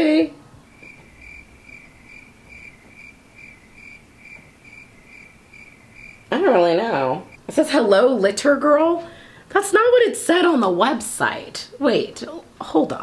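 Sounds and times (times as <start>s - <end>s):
cricket chirping: 0.6s - 7.4s.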